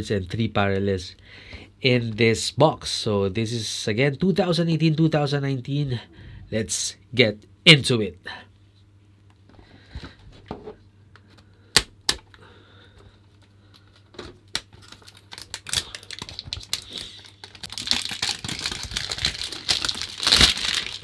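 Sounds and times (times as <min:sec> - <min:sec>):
plastic wrap crinkling: 0:14.5 - 0:21.0.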